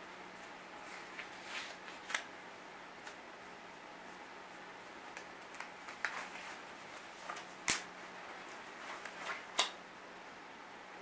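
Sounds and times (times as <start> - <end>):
gloves rustling and clicking: 5.0 - 7.9, 8.5 - 9.8
glove snapping: 7.6 - 7.9.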